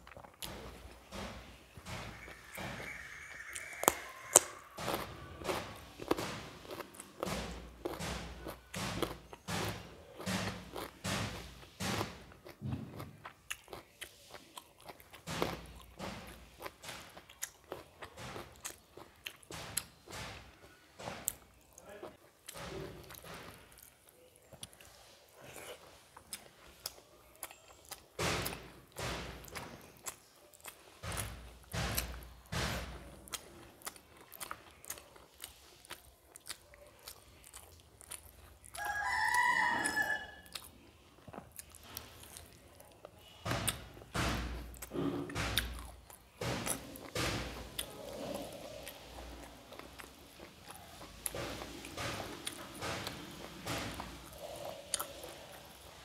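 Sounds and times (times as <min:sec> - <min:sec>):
wet chewing and lip smacks: 0:10.4 - 0:20.0, 0:29.4 - 0:32.4, 0:33.1 - 0:56.0.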